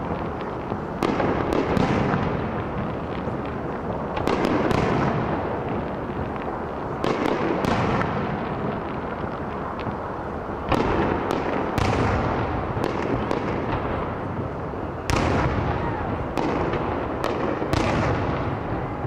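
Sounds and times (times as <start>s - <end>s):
continuous fireworks noise: 0.0s - 19.0s
fireworks bangs: 0.0s - 19.0s.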